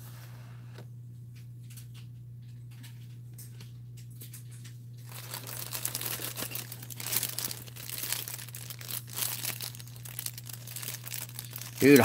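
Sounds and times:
plastic bag crinkling: 5.0 - 12.0.

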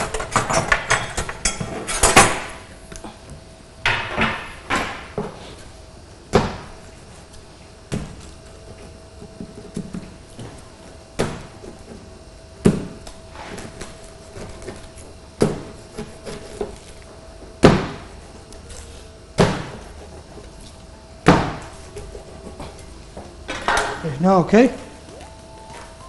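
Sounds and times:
pizza cutter thudding on board: 19.4 - 19.9.

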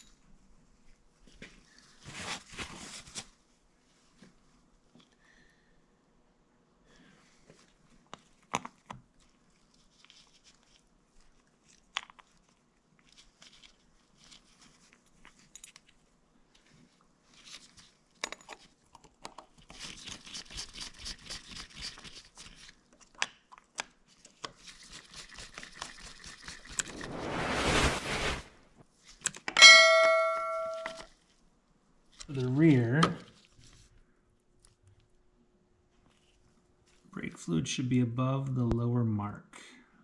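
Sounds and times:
whoosh: 26.7 - 28.8.

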